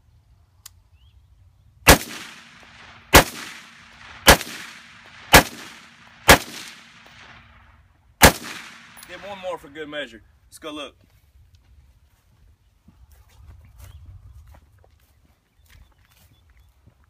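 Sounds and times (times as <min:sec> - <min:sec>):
rifle shots with echo: 0:01.9 - 0:09.7.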